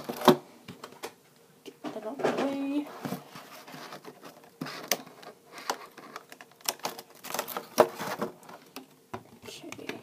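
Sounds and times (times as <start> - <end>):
plastic insert clicking and crackling: 4.8 - 9.0.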